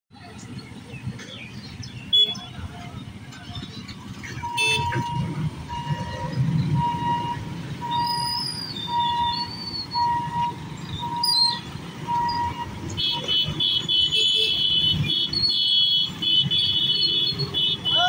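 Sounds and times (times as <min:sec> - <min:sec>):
motorcycle engines idling and revving: 0:00.1 - 0:18.0
level crossing warning beeps: 0:04.3 - 0:13.5.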